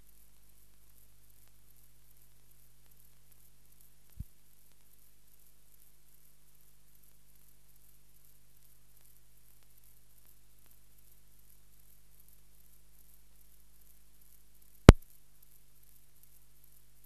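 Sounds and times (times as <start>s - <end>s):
film soundtrack hiss and hum: 0.0s - 17.0s.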